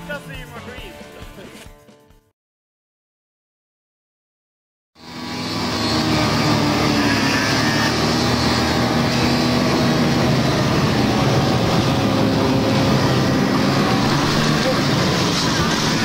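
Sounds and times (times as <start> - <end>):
snowmobile engine running: 5.0 - 16.0.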